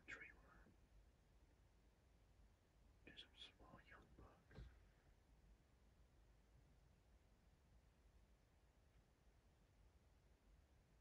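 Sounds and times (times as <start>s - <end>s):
faint whisper: 0.0s - 0.8s, 3.0s - 5.0s.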